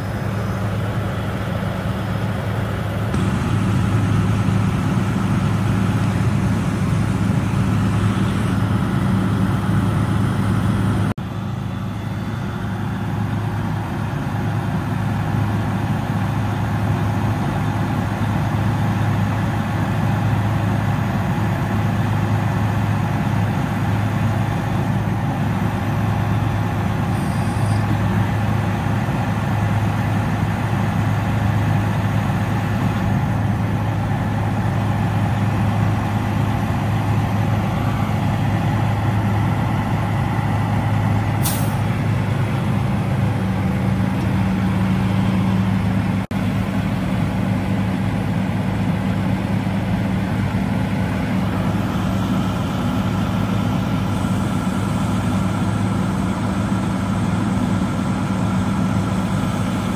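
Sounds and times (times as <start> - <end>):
diesel truck engine running: 0.0 - 59.9
crane hydraulics whining: 19.5 - 46.3.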